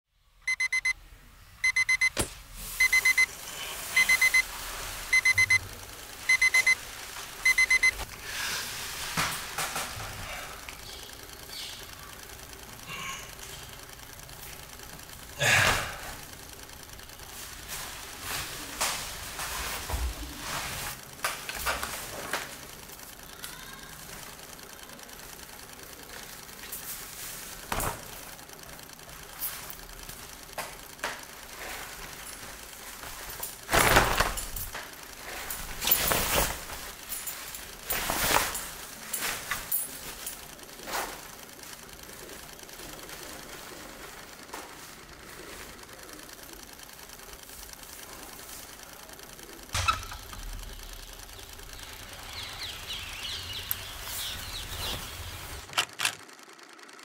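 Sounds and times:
faint mechanical whirring: 0.2s - 57.0s.

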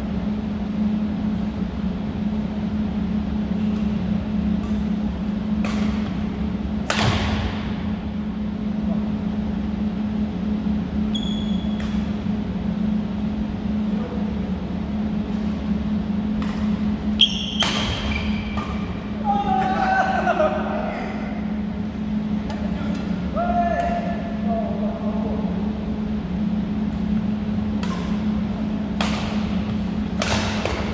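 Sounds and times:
low hum: 0.0s - 30.9s
rackets hitting shuttlecock: 3.7s - 6.2s, 6.8s - 7.6s, 16.3s - 19.8s, 27.7s - 30.9s
shoes squeaking on court: 11.1s - 12.0s, 17.2s - 18.8s.

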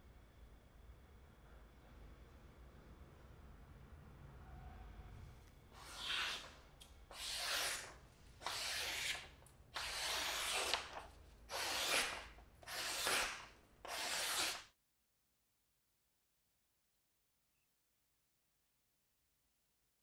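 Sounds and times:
knife slicing paper: 5.8s - 6.5s, 7.1s - 14.7s.

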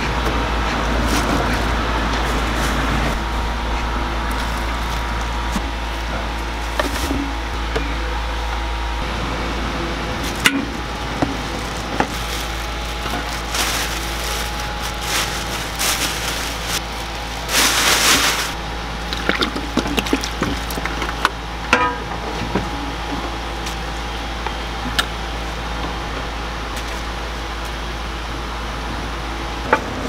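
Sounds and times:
steady low hum: 0.0s - 30.0s
ingredients knocking and rustling: 11.2s - 18.6s.

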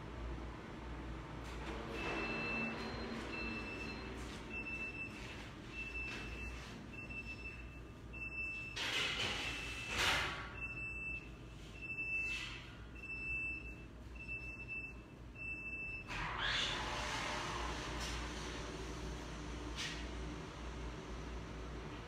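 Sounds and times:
oven timer beeping: 1.9s - 8.8s, 9.5s - 12.4s, 13.0s - 16.1s.

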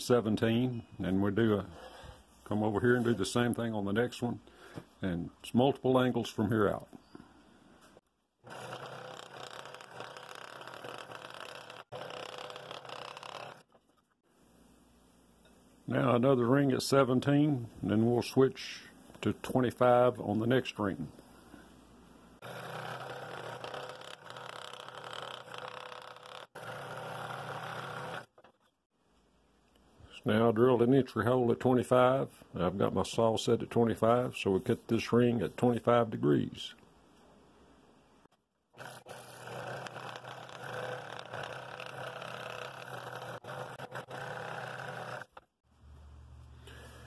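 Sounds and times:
scroll saw cutting wood: 8.4s - 13.8s, 22.4s - 28.4s, 38.8s - 45.5s.

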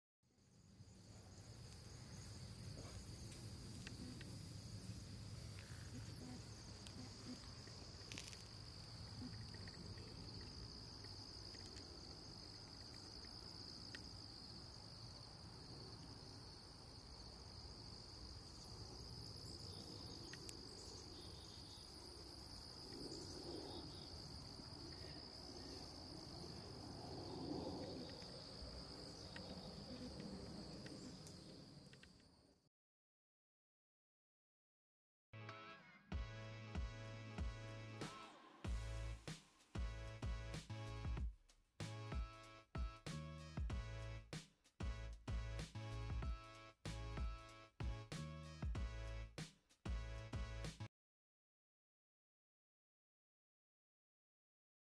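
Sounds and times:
insect trilling: 1.9s - 15.3s.

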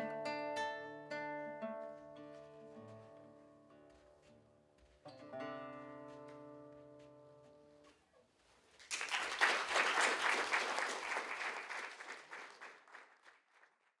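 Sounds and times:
classical guitar chord: 0.0s - 3.7s
audience applauding: 8.8s - 14.0s.

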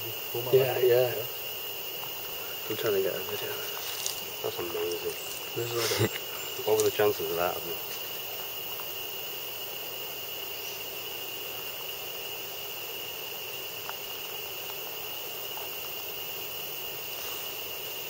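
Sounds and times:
even hiss: 0.0s - 18.0s
high-pitched insect drone: 0.0s - 18.0s
faint ticks: 13.8s - 14.0s.

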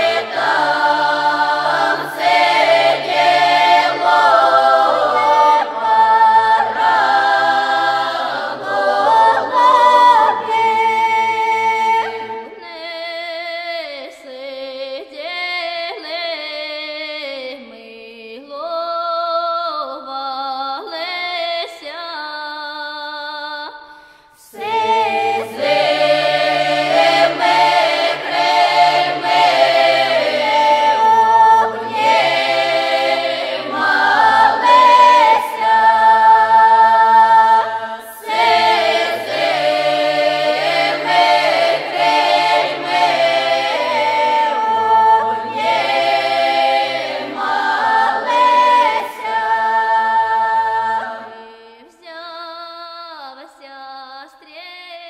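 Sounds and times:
choir singing: 0.0s - 12.8s, 24.4s - 51.6s.

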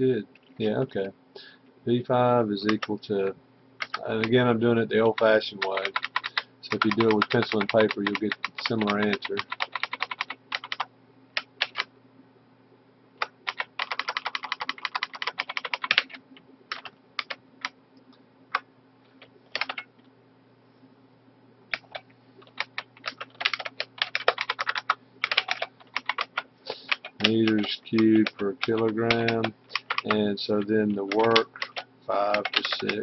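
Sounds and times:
typing on computer keyboard: 2.6s - 2.9s, 3.8s - 4.4s, 5.1s - 11.9s, 13.2s - 17.4s, 19.6s - 19.9s, 21.7s - 33.0s.

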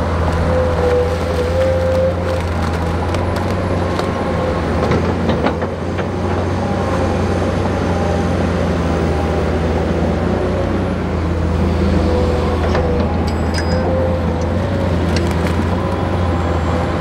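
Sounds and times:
diesel engine running: 0.0s - 17.0s.

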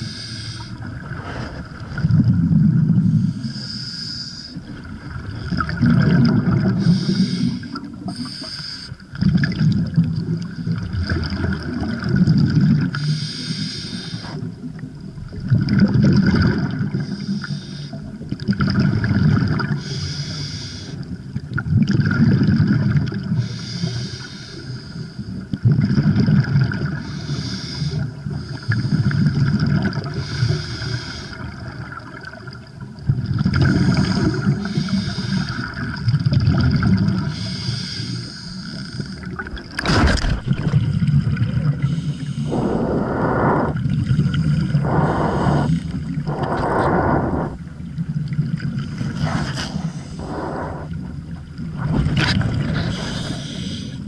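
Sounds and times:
regulator hiss on inhale: 0.0s - 1.7s, 3.0s - 4.6s, 6.8s - 9.0s, 13.0s - 14.5s, 16.9s - 18.1s, 19.7s - 21.2s, 23.3s - 25.4s, 27.0s - 29.4s, 30.2s - 31.6s, 33.7s - 35.8s, 37.3s - 39.4s, 41.8s - 48.1s, 48.9s - 51.4s, 52.7s - 54.0s
exhaust bubbles rumbling: 0.7s - 3.4s, 4.6s - 6.9s, 14.6s - 17.0s, 39.3s - 54.0s.

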